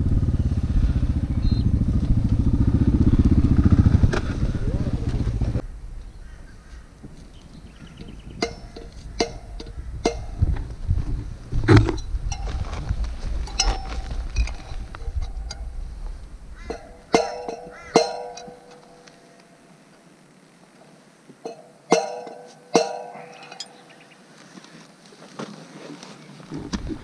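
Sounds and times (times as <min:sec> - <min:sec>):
motorcycle engine running: 0:00.0 - 0:06.8, 0:07.7 - 0:19.0
metallic clinks and knocks: 0:08.0 - 0:10.7, 0:11.7 - 0:15.8, 0:16.7 - 0:19.2, 0:21.5 - 0:23.8.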